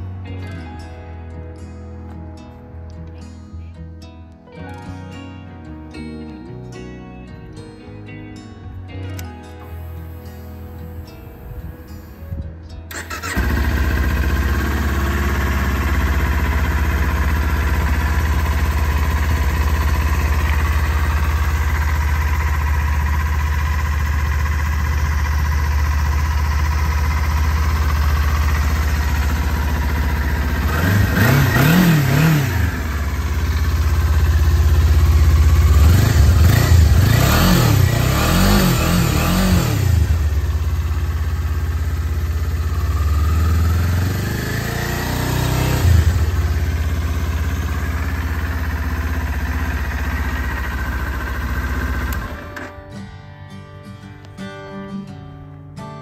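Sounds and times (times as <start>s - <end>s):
engine revving: 12.9s - 52.7s
motorcycle engine starting and idling: 12.9s - 53.1s.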